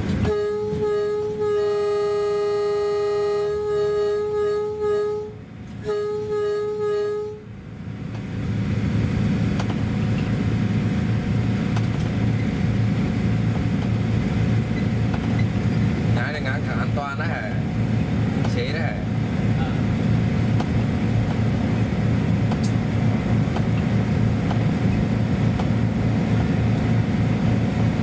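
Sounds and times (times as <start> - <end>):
train rumbling: 0.0 - 28.0
train air horn blasts: 0.1 - 7.6.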